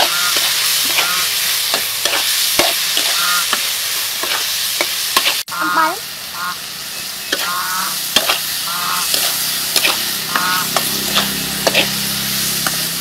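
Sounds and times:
metal spatula scraping pan: 0.0s - 3.6s, 7.3s - 13.0s
food sizzling in oil: 0.0s - 13.0s.

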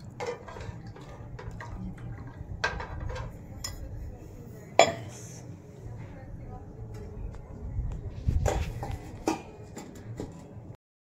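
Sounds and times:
ladle stirring thick gravy: 0.0s - 4.8s.

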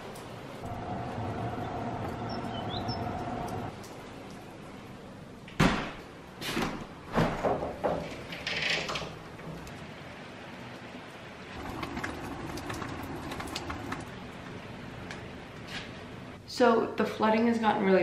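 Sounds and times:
steady hum: 0.5s - 3.8s.

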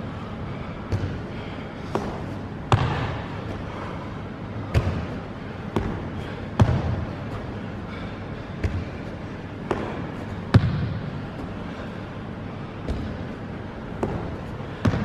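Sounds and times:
sneakers thudding on box and floor: 1.9s - 3.4s, 4.7s - 7.1s, 9.7s - 11.1s, 12.8s - 13.2s, 14.0s - 15.0s.

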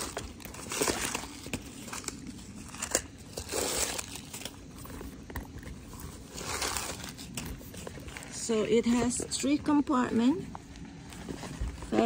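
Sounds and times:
tissue paper crinkling: 5.8s - 8.4s.

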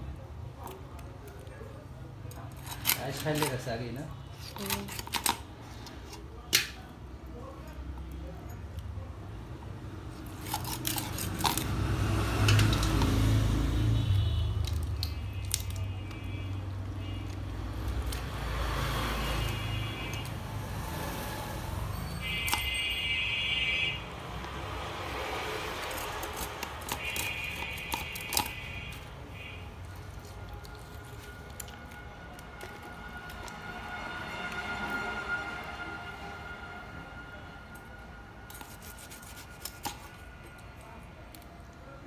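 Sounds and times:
wet scraping of fish: 38.5s - 40.2s.

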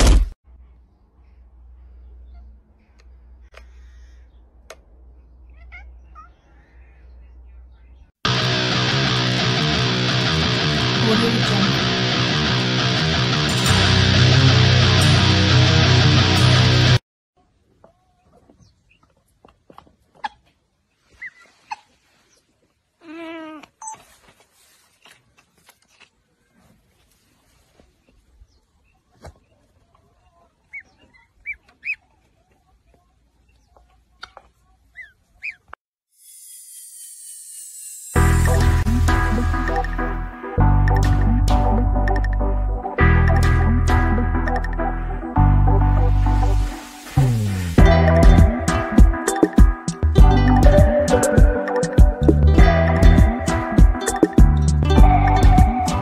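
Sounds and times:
strummed guitar music: 8.3s - 17.0s, 47.8s - 56.0s.

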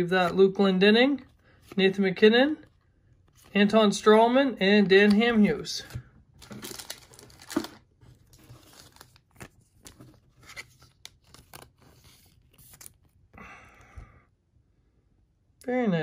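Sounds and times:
card handling clicks and scrapes: 5.0s - 13.2s
plastic sleeve crinkling: 6.3s - 13.1s.

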